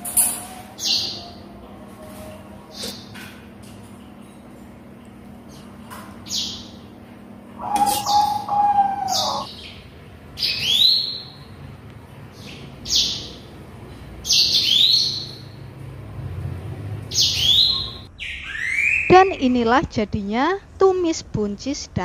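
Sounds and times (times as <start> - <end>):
bird chirping: 7.6 - 11.5, 17.1 - 19.6.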